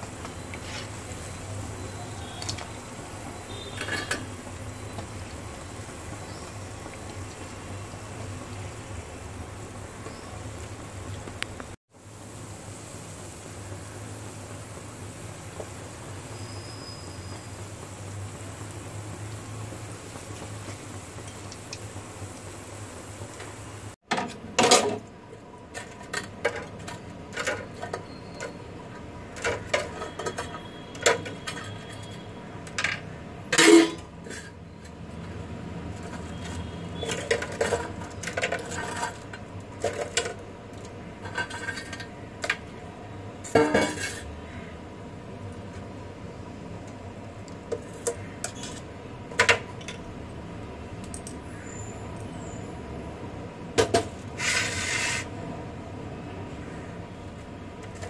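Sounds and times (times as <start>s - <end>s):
dishes clinking and knocking: 43.5s - 44.2s.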